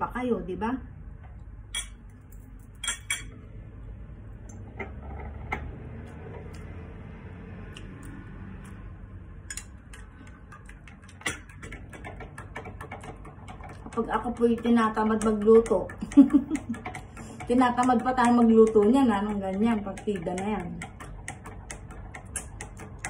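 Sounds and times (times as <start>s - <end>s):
low steady hum: 0.0s - 23.0s
metal spoon clinking on plate: 1.7s - 2.0s, 2.8s - 3.3s.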